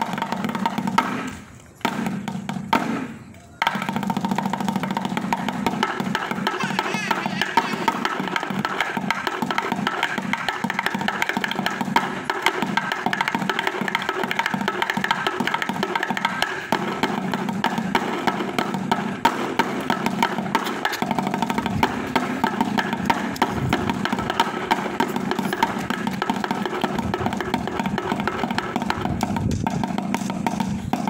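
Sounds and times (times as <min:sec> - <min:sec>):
drumsticks beating buckets: 0:05.7 - 0:12.8.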